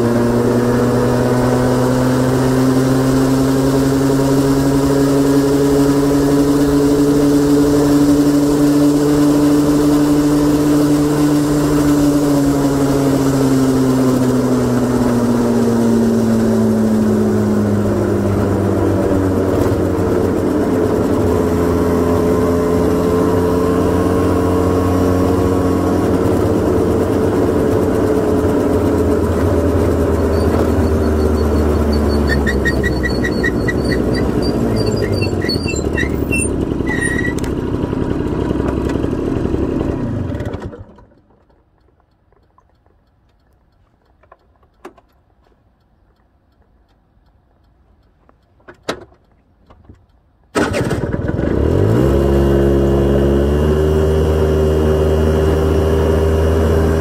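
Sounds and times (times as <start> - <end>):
engine switched off: 0.0 - 41.6, 50.4 - 57.0
scooter engine idling: 25.8 - 43.9
engine starting: 30.3 - 37.6, 40.0 - 41.5, 50.5 - 52.2
faint clicks: 40.9 - 50.6.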